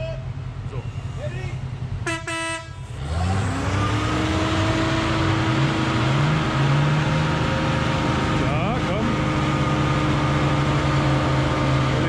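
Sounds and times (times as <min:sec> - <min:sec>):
truck engine revving under load: 0:00.0 - 0:12.0.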